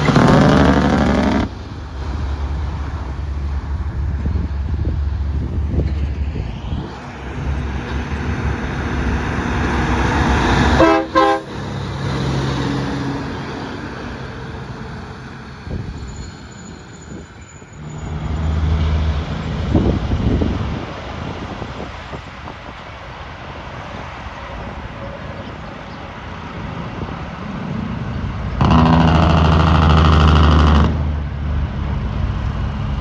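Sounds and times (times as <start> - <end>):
diesel trucks passing: 0.0 - 33.0
truck engine: 0.0 - 33.0
truck air horn blast: 10.7 - 11.6, 28.6 - 31.2.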